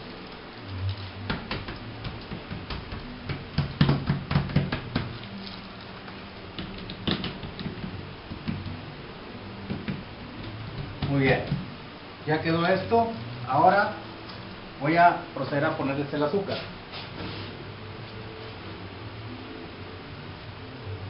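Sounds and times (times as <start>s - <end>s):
hands patting dough on metal sheet: 1.2s - 5.4s, 6.6s - 8.8s, 9.6s - 11.7s.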